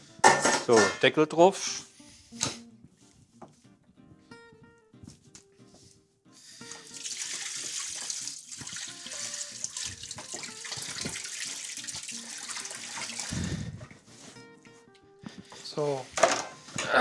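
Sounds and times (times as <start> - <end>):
tap water running into sink: 6.7 - 13.3.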